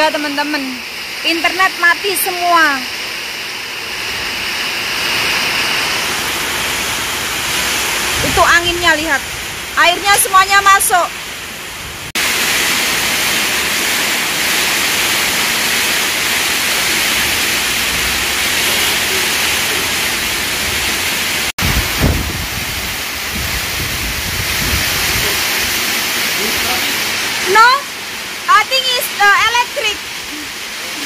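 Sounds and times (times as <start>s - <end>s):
heavy rain hissing: 0.0s - 31.0s
wind gusts buffeting microphone: 6.6s - 10.9s, 21.6s - 25.9s.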